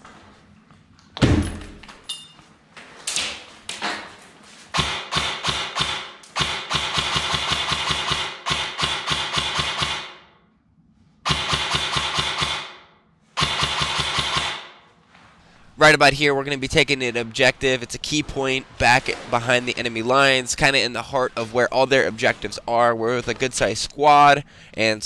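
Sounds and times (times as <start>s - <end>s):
airsoft gun firing bursts: 4.8s - 10.3s, 11.3s - 14.8s.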